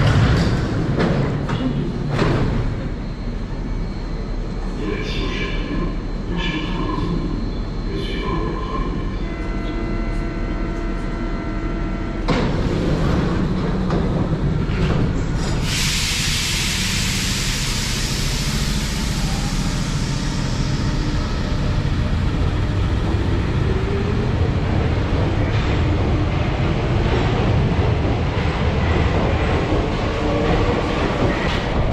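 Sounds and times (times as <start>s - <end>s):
train doors shutting: 0.0s - 3.7s, 12.0s - 31.9s
loud air hiss: 15.5s - 20.8s.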